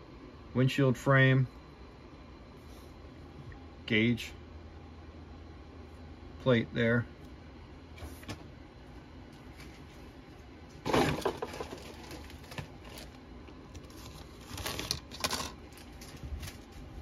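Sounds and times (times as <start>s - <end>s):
plastic parts clattering: 10.8s - 13.1s, 13.8s - 16.6s.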